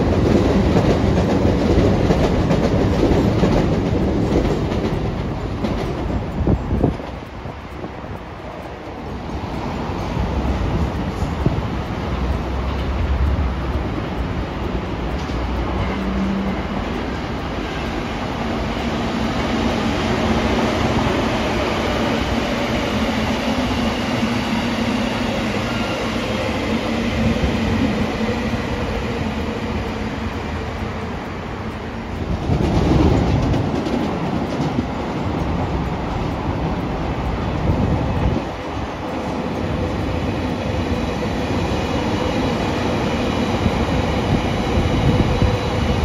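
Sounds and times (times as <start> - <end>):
train wheels rumbling on rails: 0.0 - 46.0.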